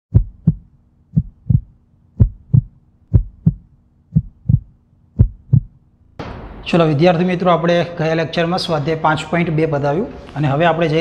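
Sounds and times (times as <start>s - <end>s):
heartbeat thumps: 0.1s - 6.6s
faint steady hum: 0.1s - 11.0s.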